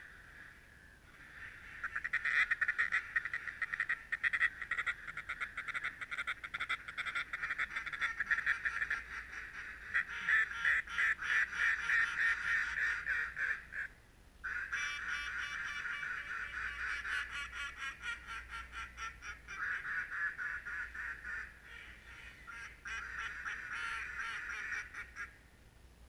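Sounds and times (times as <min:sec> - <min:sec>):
ducks quacking: 0:01.1 - 0:25.4.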